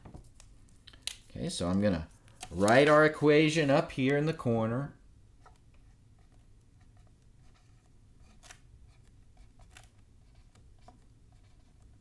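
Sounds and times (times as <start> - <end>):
low room hum: 0.0 - 12.0
marker squeaking on whiteboard: 10.2 - 12.0.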